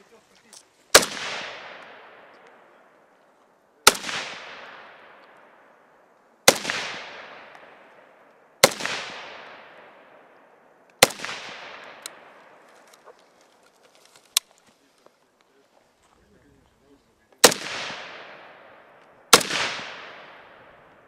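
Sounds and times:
rifle shots with echo: 0.9 - 3.2, 3.8 - 13.2, 17.4 - 21.0.

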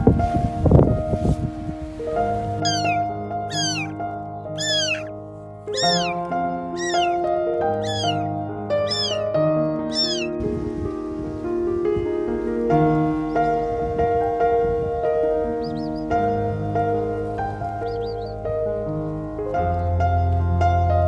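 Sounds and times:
soft background music: 0.2 - 21.0
kitten meowing: 2.6 - 4.0, 4.6 - 5.1, 5.7 - 6.2, 6.8 - 9.3, 9.9 - 10.4.

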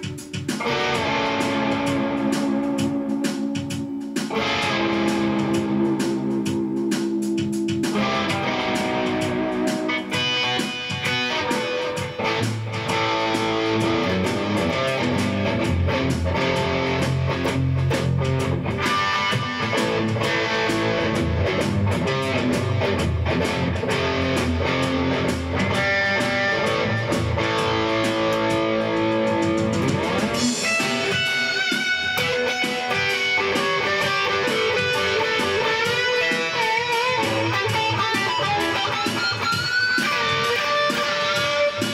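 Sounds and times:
drum beat: 0.0 - 41.9
electric guitar: 0.0 - 41.9
bass line: 12.0 - 32.4.

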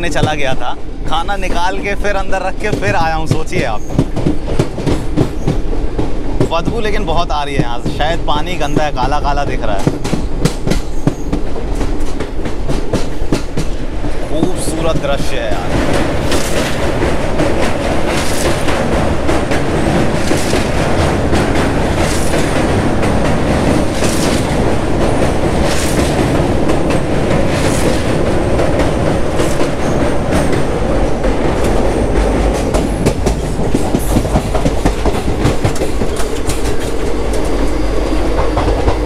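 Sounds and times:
train wheels rumbling on rails: 0.0 - 39.0
wheels clacking over rail joints: 2.5 - 39.0.

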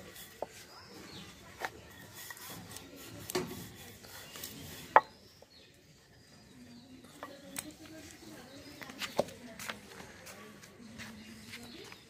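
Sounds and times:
rolling pin rubbing on dough: 0.0 - 5.4
wood knocking on wood: 4.9 - 5.1.

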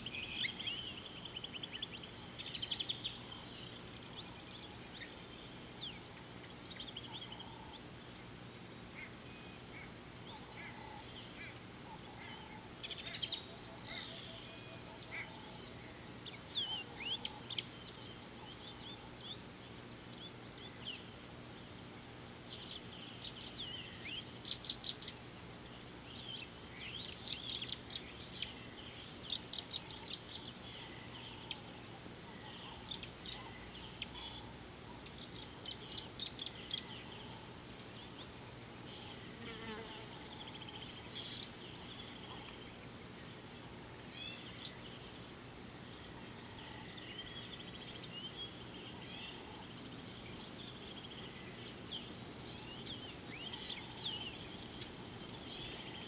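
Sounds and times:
birds chirping and trilling: 0.0 - 21.8, 22.4 - 56.0
lower bird calls: 8.9 - 21.2, 26.1 - 56.0.

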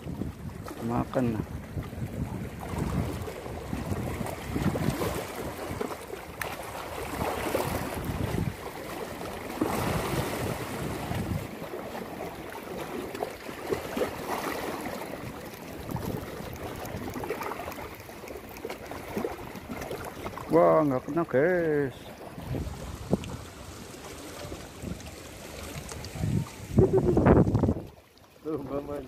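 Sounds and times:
wind buffeting microphone: 0.0 - 6.0, 7.0 - 8.6, 9.6 - 11.6, 15.2 - 17.4, 20.2 - 29.0
water lapping on rocks: 0.0 - 29.0.

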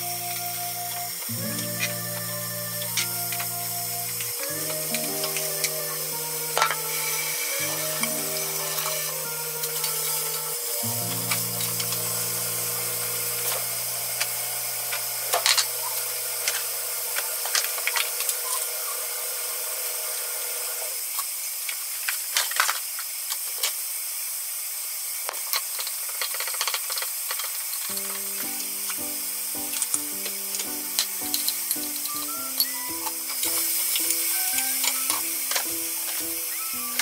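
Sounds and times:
gentle background music: 0.0 - 18.0, 27.9 - 37.0
steady high hiss: 0.0 - 37.0.

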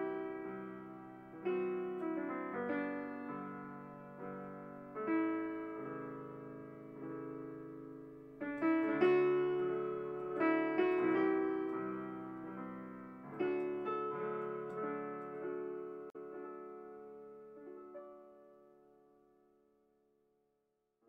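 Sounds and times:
slow gentle piano music: 0.0 - 20.2.

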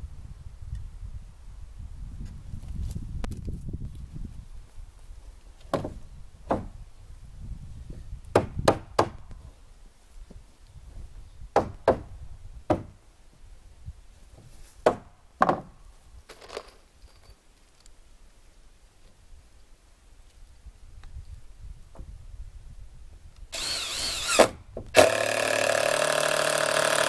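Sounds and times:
knocks on wooden boards: 5.7 - 6.8, 11.5 - 12.1, 12.7 - 13.0, 14.8 - 15.7.

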